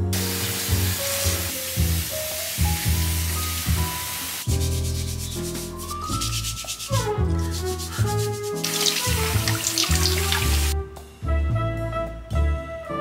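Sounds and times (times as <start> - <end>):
tap water running: 0.0 - 4.5, 6.4 - 10.8
background music with steady beat: 0.0 - 13.0
brush scrubbing carrots: 0.6 - 10.8.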